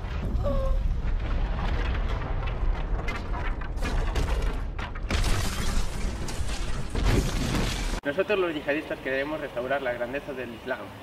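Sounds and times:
crackling debris: 0:00.0 - 0:08.0
explosion with deep rumble: 0:00.0 - 0:08.0.

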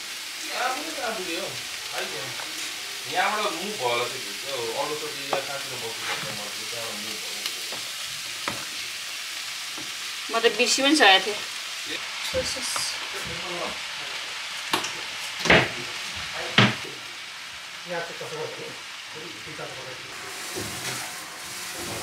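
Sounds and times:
vegetables sizzling in a wok: 0:00.0 - 0:22.0
scraping and clatter in a wok: 0:05.9 - 0:06.6, 0:20.1 - 0:22.0.

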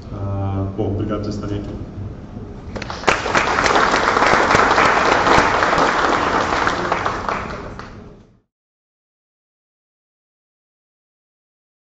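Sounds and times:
audience applauding: 0:02.8 - 0:08.2.

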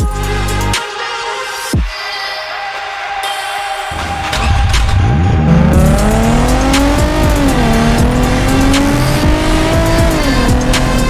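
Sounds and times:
music with steady beat: 0:00.0 - 0:02.0, 0:03.2 - 0:11.0
car engine accelerating: 0:03.9 - 0:11.0.

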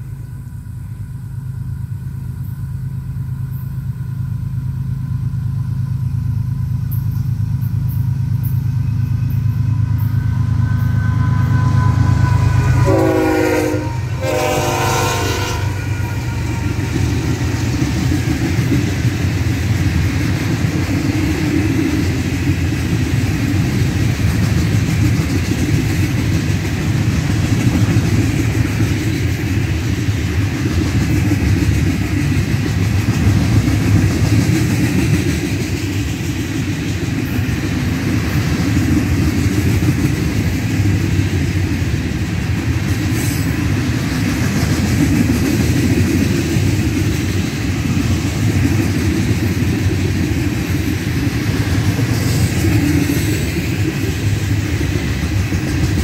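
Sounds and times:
diesel locomotive engine rumble: 0:00.0 - 0:56.0
train air horn blasts: 0:09.7 - 0:17.3
freight cars clacking on rails: 0:15.6 - 0:56.0.

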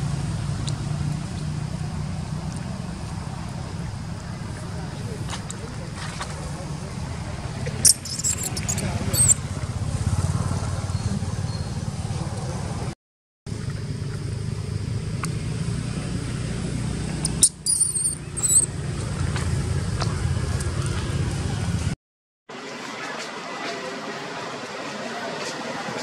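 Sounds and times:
baby monkey squeaks: 0:07.8 - 0:09.4, 0:17.2 - 0:18.7.

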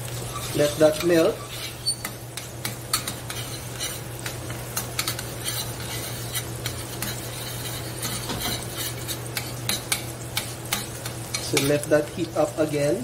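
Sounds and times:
butter sizzling in pan: 0:00.0 - 0:13.0
spoon scraping against pan: 0:00.1 - 0:11.9.

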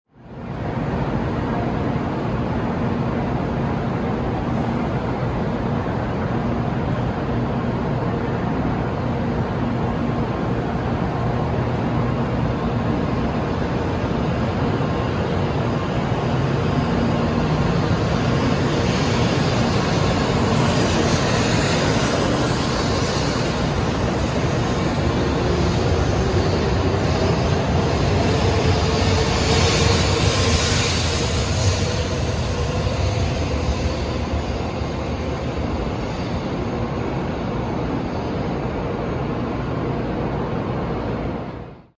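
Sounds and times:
train running noise: 0:00.1 - 0:41.9
train whine rising in pitch: 0:10.2 - 0:41.9.

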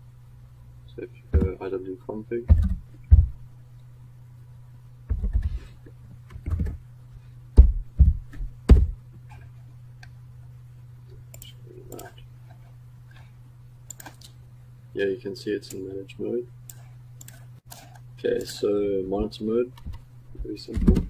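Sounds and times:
low electrical hum: 0:00.0 - 0:21.0
heavy keyboard keystrokes: 0:06.3 - 0:06.8.

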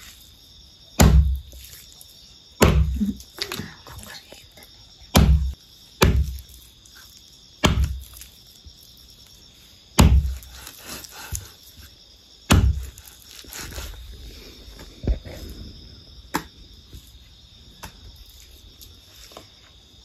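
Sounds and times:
knife chopping on wooden block: 0:01.0 - 0:01.4, 0:02.6 - 0:03.0, 0:05.1 - 0:06.4, 0:07.6 - 0:08.1, 0:10.0 - 0:10.5, 0:12.5 - 0:13.0.

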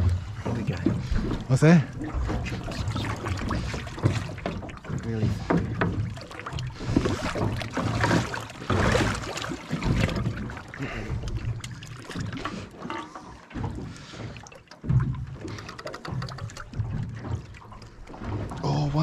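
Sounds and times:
water slapping against boat: 0:00.0 - 0:19.0
small knocks: 0:14.9 - 0:18.0.

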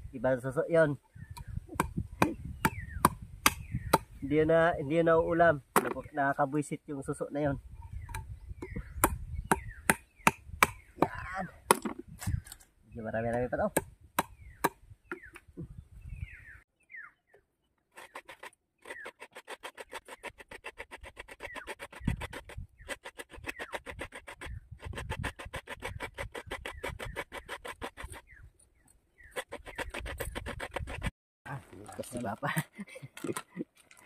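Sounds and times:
bird chirping: 0:00.7 - 0:20.4, 0:21.3 - 0:24.8, 0:25.8 - 0:30.4
coconut scraped on grater: 0:18.0 - 0:28.3, 0:29.2 - 0:31.1.

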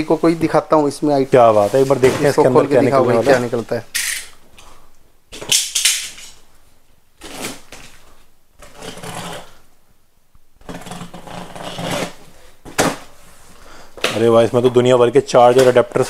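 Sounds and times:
rustling of cardboard and packaging: 0:00.0 - 0:03.8, 0:06.3 - 0:09.7, 0:10.6 - 0:16.0.

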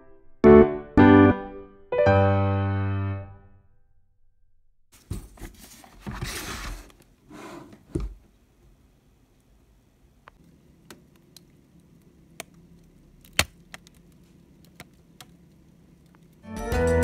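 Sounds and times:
background keyboard music: 0:00.0 - 0:03.6, 0:16.4 - 0:17.0.

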